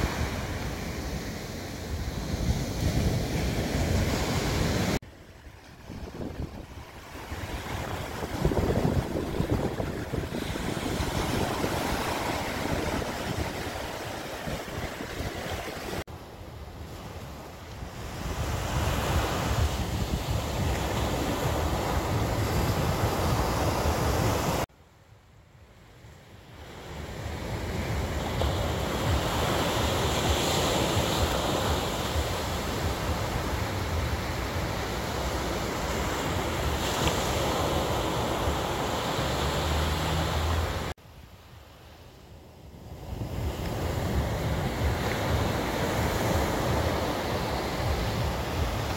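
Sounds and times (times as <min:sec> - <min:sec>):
wind rumbling on microphone: 0:00.0 - 0:24.6, 0:42.7 - 0:48.9
waves breaking on sand: 0:00.0 - 0:24.7, 0:26.6 - 0:41.0, 0:41.6 - 0:48.9.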